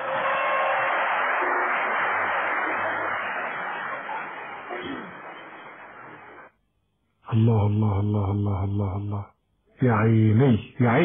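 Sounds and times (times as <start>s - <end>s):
audience applause: 0.0s - 6.5s.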